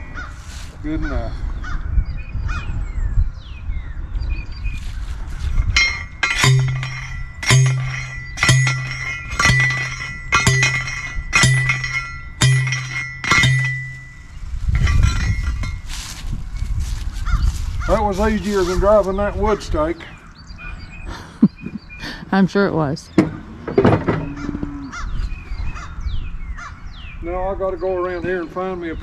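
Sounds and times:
post driver clanking on steel post: 5.6 - 16.0, 23.1 - 24.7.

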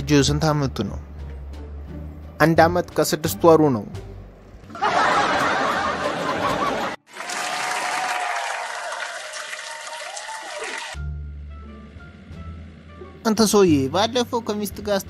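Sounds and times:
audience laughter and applause: 4.7 - 11.0.

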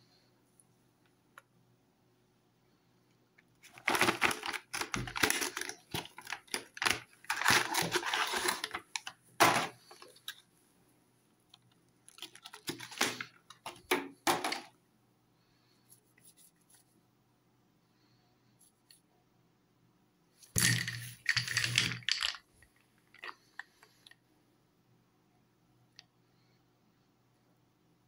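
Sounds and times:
cardboard and plastic crinkling: 3.6 - 10.4, 12.1 - 14.7.

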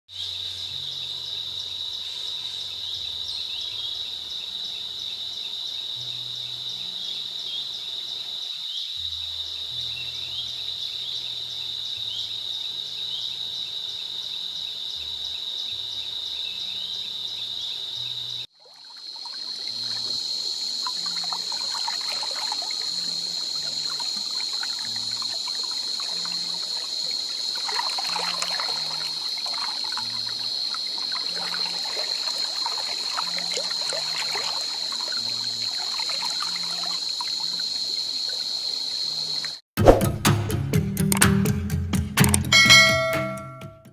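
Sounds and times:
insects chorus: 0.1 - 39.6
stream gurgling and splashing: 18.4 - 40.0.

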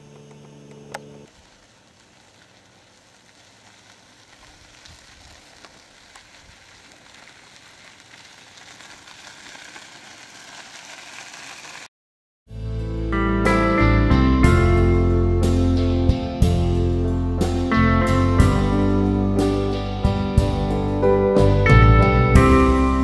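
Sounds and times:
wheels crunching on gravel: 0.0 - 11.9
footsteps on gravel: 1.3 - 11.9.

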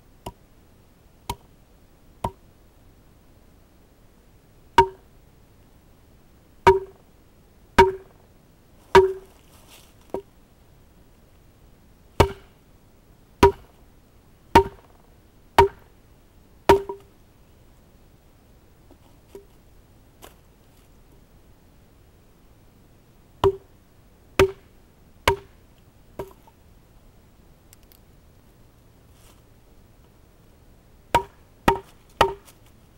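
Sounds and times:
hatchet chopping wood: 4.8 - 5.0, 6.7 - 7.0, 7.8 - 8.1, 9.0 - 9.2, 12.2 - 12.5, 13.4 - 13.7, 14.6 - 15.0, 15.6 - 15.8, 16.7 - 17.0, 23.4 - 23.6, 24.4 - 24.6, 25.3 - 25.5, 31.2 - 32.5.

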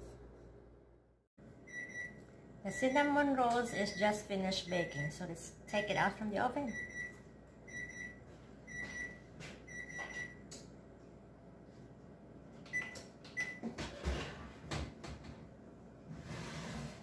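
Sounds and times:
oven timer beeping: 1.6 - 5.2, 6.7 - 10.6, 12.7 - 13.6.

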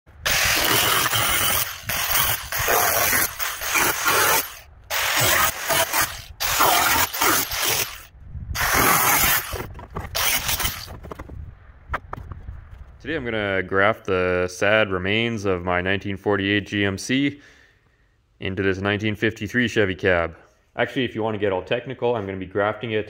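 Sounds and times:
angle grinder on sheet steel: 0.2 - 10.9.

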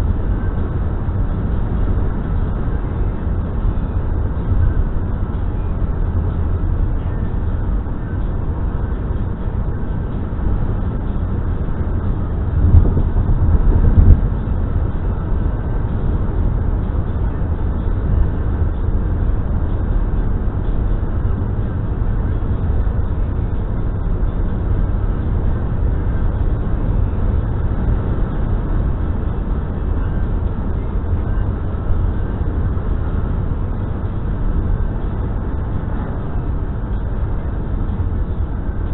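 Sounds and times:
car road and tyre noise: 0.0 - 38.9.

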